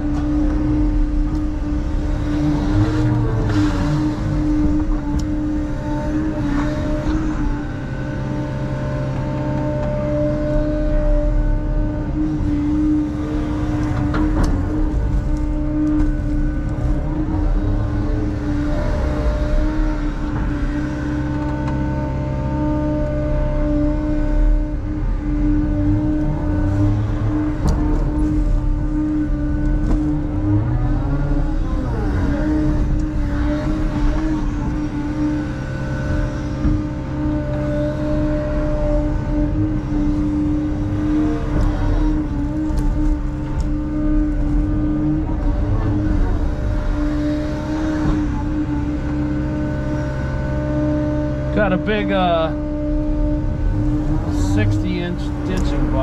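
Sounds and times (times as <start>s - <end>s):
excavator diesel engine running: 0.0s - 56.0s
hydraulic whine: 0.0s - 56.0s.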